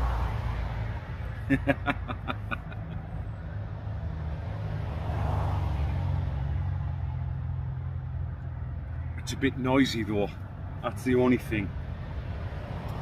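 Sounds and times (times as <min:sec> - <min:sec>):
road traffic rumble: 0:00.0 - 0:13.0
vehicle passing: 0:00.0 - 0:13.0.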